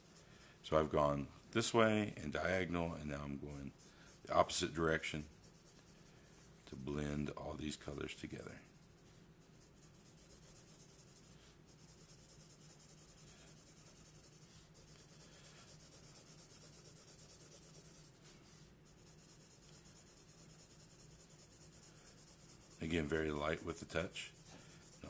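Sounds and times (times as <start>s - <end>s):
marker scratching on paper: 8.6s - 25.0s.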